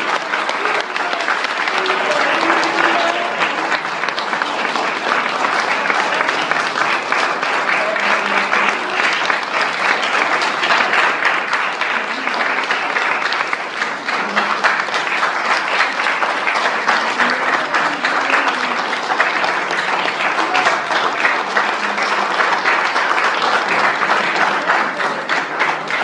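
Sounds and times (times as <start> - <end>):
audience applauding: 0.0 - 26.0.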